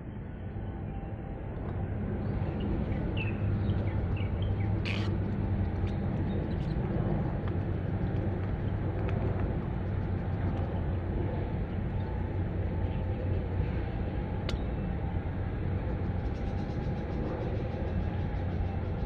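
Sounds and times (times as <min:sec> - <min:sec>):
faint hum: 0:00.0 - 0:19.0
steady low rumble: 0:00.0 - 0:19.0
bird chirps: 0:04.2 - 0:05.1.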